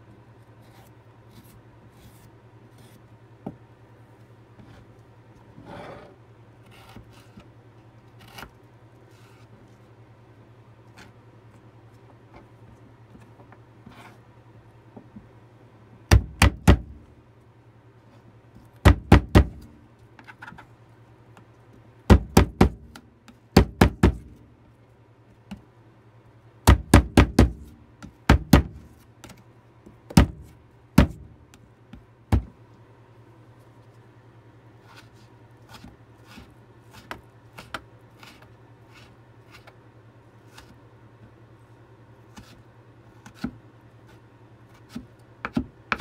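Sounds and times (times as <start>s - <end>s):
knife chopping on plastic board: 22.1s - 24.4s, 26.7s - 28.9s, 30.1s - 31.3s, 44.9s - 46.0s.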